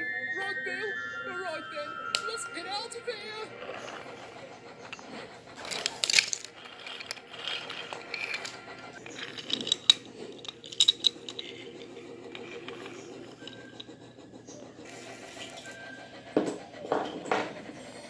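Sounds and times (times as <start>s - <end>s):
wooden toy trains clattering: 3.6s - 18.0s.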